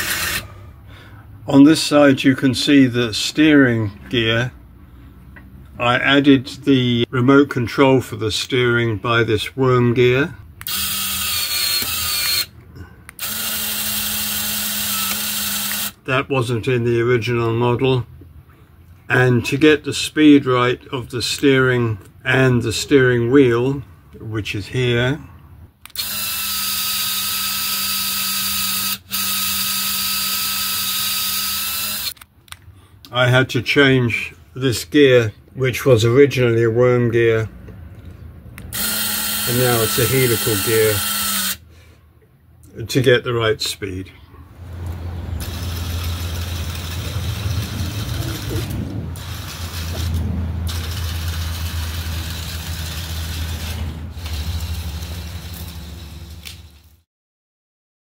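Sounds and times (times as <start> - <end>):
small electric motor whine: 0.0 - 0.4, 10.7 - 12.5, 13.2 - 16.0, 26.0 - 32.2, 38.8 - 41.6, 45.4 - 56.7.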